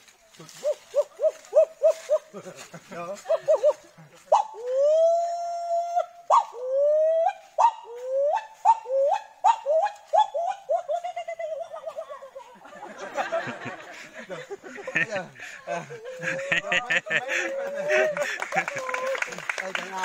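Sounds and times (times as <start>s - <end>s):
group of people laughing: 2.2s - 4.3s, 10.9s - 19.6s
man whooping animal calls: 3.5s - 12.0s.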